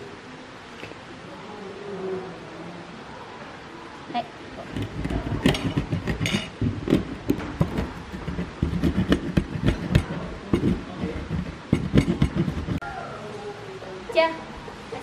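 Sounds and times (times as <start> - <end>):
stone pestle grinding in mortar: 4.6 - 12.8.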